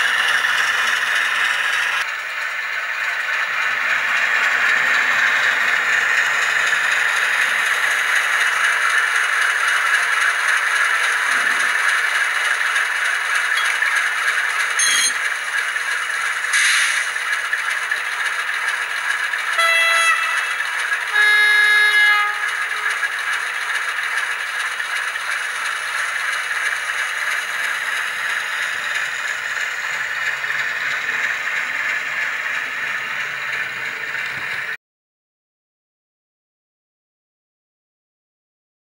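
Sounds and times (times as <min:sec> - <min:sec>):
model train diesel engine sound: 0:00.0 - 0:34.8
model train horn: 0:19.4 - 0:23.4.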